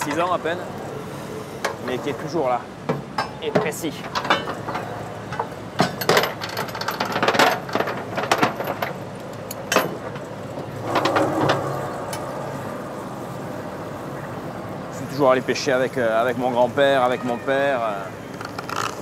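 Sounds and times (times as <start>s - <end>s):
boat engine hum: 0.0s - 19.0s
gear clanking on boat deck: 1.6s - 13.1s.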